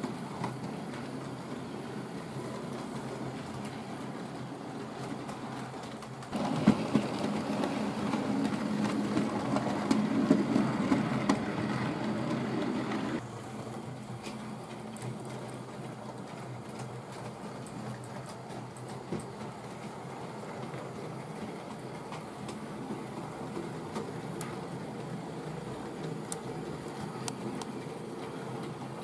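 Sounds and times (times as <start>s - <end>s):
wheels clicking over rail joints: 0.0s - 29.0s.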